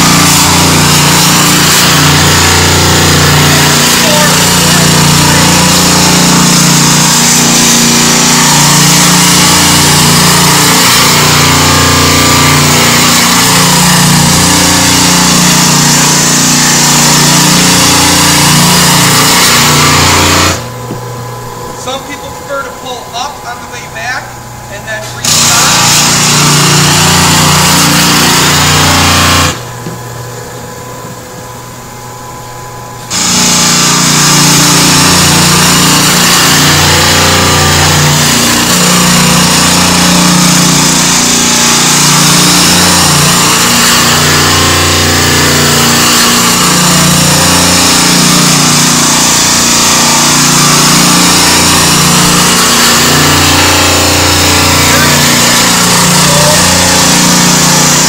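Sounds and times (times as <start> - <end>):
drum sander running: 0.0 - 58.0
quiet motor hum: 19.0 - 26.8.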